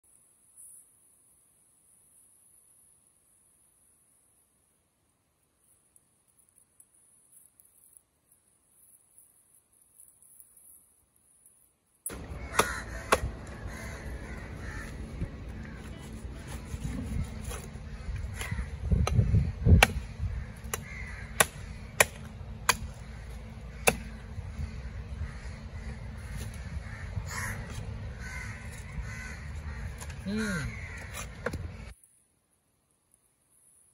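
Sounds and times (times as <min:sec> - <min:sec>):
crows cawing: 0:12.1 - 0:16.0, 0:17.2 - 0:31.9
cleaver chopping on wooden block: 0:12.2 - 0:13.3, 0:19.0 - 0:23.0, 0:23.8 - 0:24.2.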